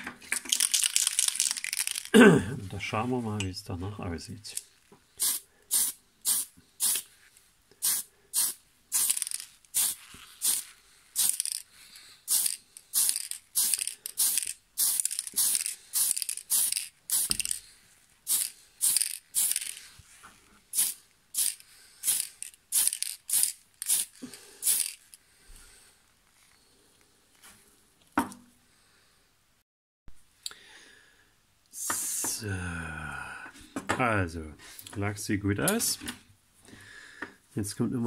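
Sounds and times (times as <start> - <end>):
spray paint hissing bursts: 5.2 - 7.1, 7.8 - 17.6, 18.2 - 20.0, 20.7 - 25.0.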